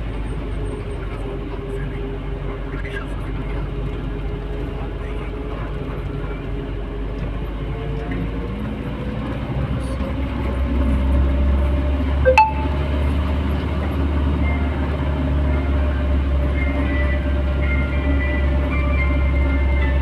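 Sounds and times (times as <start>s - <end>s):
vehicle interior road drone: 0.0s - 20.0s.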